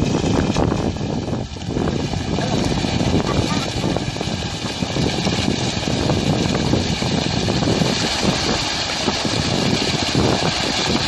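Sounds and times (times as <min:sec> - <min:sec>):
water splashing and churning: 0:00.0 - 0:11.0.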